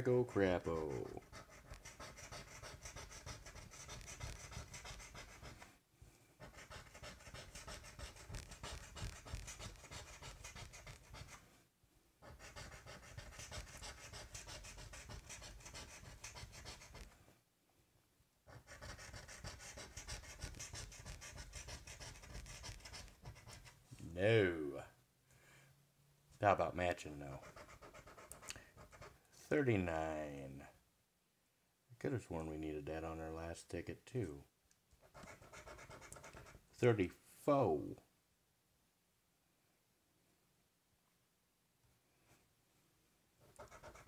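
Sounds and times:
coin scratching a ticket: 0.3 - 5.6, 6.4 - 11.4, 12.2 - 17.0, 18.5 - 23.8, 27.4 - 29.1, 35.1 - 36.6, 43.6 - 44.0.

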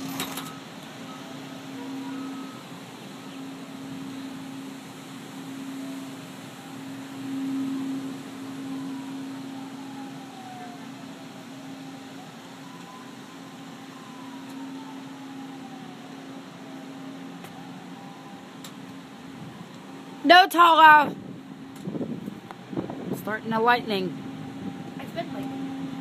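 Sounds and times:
faint gliding tones: 0.5 - 18.6.

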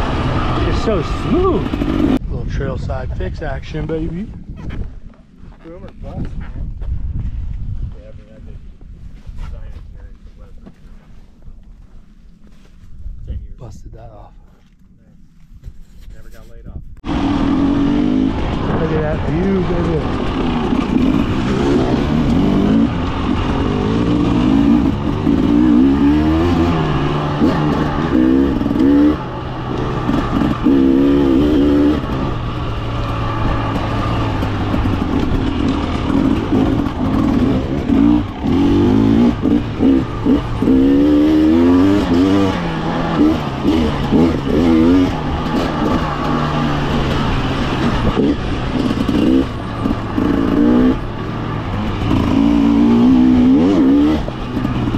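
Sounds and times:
two-stroke motorcycle engine revving: 0.0 - 2.2, 17.0 - 54.9.

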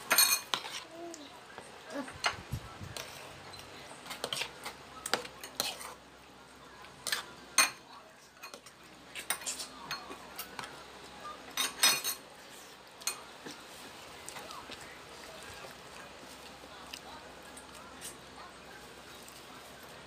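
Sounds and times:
cutlery clinking on plates: 0.0 - 0.8, 3.0 - 6.0, 7.0 - 7.8, 8.4 - 10.8, 11.5 - 12.2, 13.0 - 13.6.

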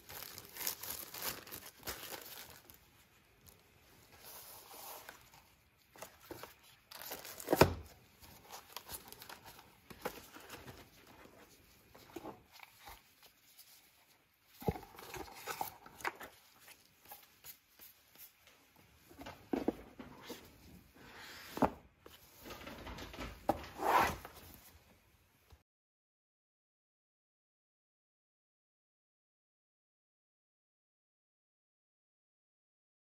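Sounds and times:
plastic wrap crinkling: 0.0 - 18.4
cardboard rustling: 0.0 - 24.8.

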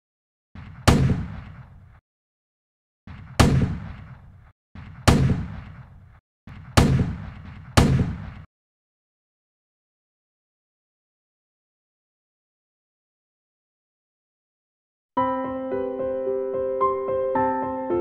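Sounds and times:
loud echoing bangs: 0.6 - 2.0, 3.1 - 8.5.

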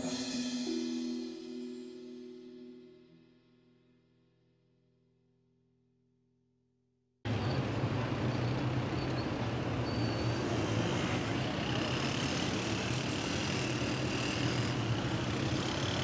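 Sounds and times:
city road traffic hum: 7.3 - 16.0.

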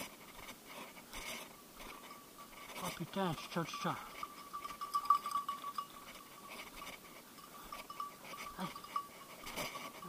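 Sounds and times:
dog collar bell jingling: 1.8 - 10.0.

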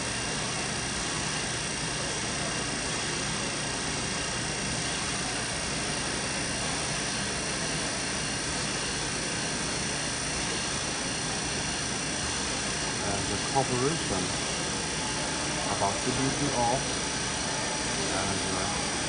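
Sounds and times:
machinery hiss: 12.6 - 19.0.

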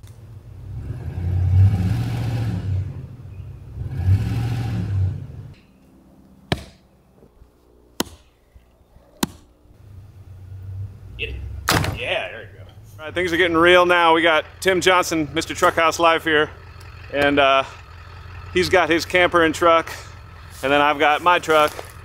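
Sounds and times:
pickup truck engine revving: 0.4 - 5.6, 9.8 - 22.0
axe chopping wood: 6.5 - 6.8, 8.0 - 8.3, 9.2 - 9.5, 11.7 - 12.1.

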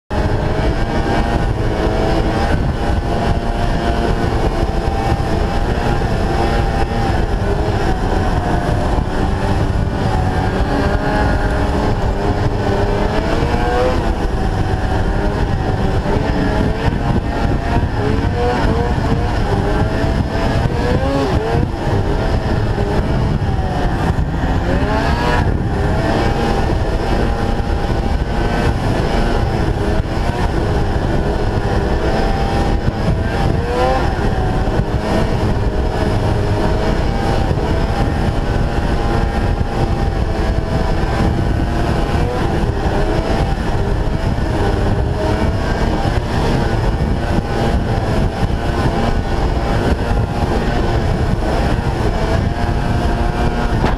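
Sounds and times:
snowmobile engine and track: 0.0 - 53.9
wind buffeting microphone: 0.1 - 53.9.

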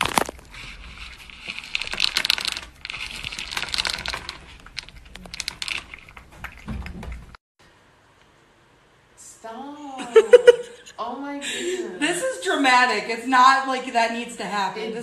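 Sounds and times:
cat crunching food: 0.0 - 7.4
kibble rattling in plastic bowl: 0.0 - 7.4.

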